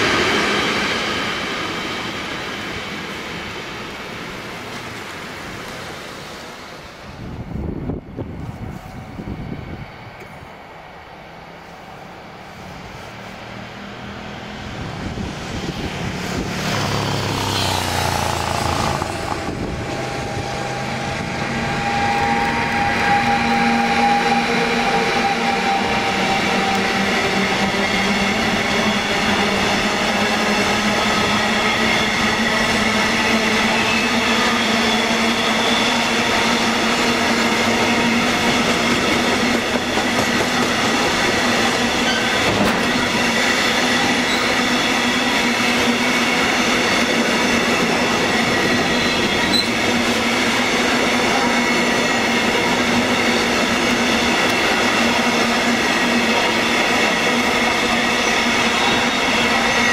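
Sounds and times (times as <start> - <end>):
electric locomotive passing: 0.0 - 59.9
wheels whining: 14.0 - 59.9.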